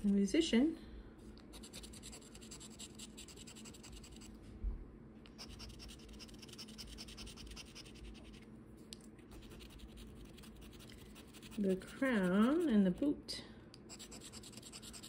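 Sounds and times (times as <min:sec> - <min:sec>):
scratching lottery ticket: 0:05.4 - 0:08.4, 0:09.3 - 0:12.7, 0:13.9 - 0:15.0.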